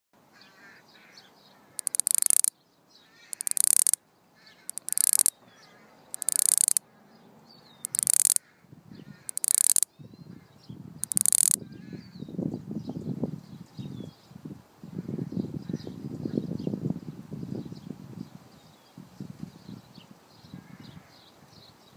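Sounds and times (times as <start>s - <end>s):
cicada buzzing in bursts: 1.8s - 2.5s, 3.4s - 4.0s, 4.7s - 5.3s, 6.2s - 6.8s, 7.9s - 8.4s, 9.3s - 9.9s, 11.0s - 11.6s.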